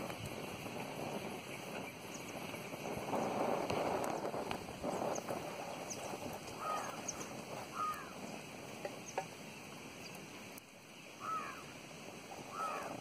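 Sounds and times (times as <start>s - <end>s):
background hiss: 0.0s - 13.0s
bird calling: 4.2s - 11.8s, 12.4s - 13.0s.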